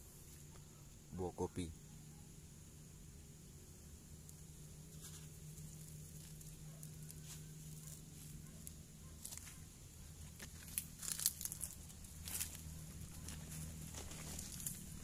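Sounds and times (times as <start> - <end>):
leaves rustling and crackling: 4.2 - 15.0.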